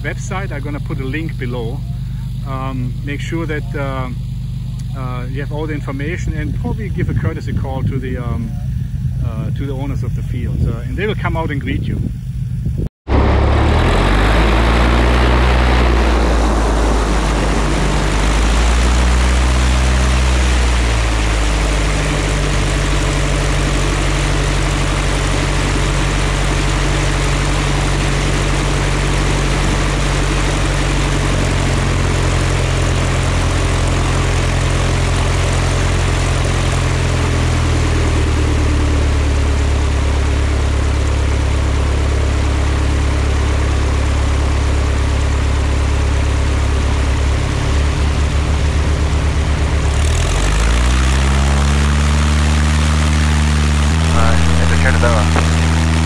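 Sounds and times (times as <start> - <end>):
propeller plane engine revving: 0.0 - 56.0.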